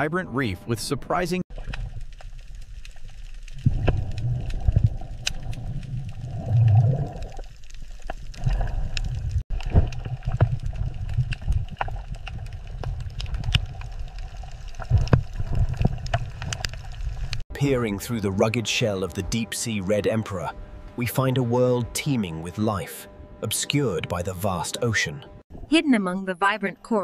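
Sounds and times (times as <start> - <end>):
sharp underwater clicks: 1.5 - 17.4
underwater bubbling: 1.5 - 17.4
low underwater rumbling wash: 1.5 - 25.8.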